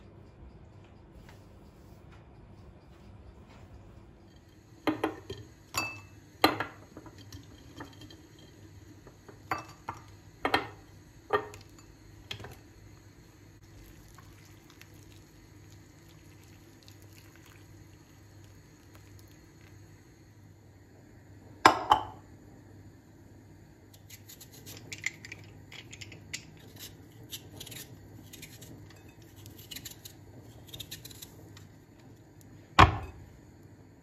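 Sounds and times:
crockery clinking: 4.4s - 8.6s, 9.4s - 11.9s.

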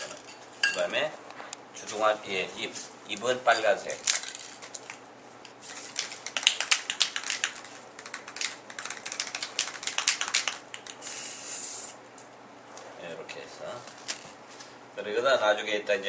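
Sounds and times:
spray can ball rattling: 3.9s - 5.0s, 5.7s - 11.9s
spray hiss: 11.0s - 12.0s.

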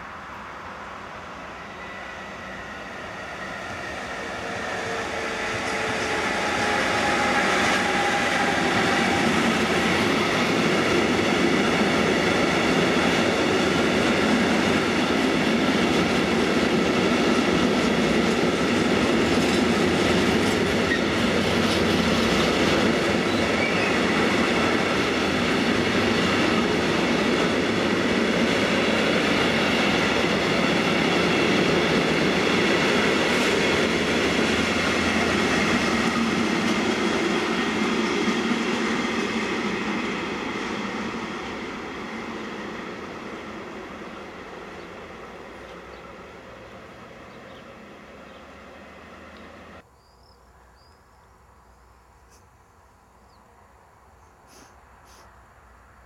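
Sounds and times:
freight train rumbling past: 0.0s - 49.9s
steel wheels clattering on rails: 4.8s - 37.8s.

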